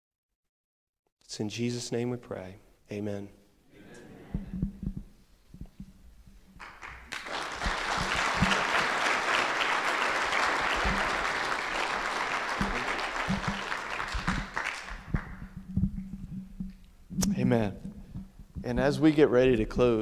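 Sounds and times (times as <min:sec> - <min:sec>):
congregation applauding: 0:06.6 - 0:15.6.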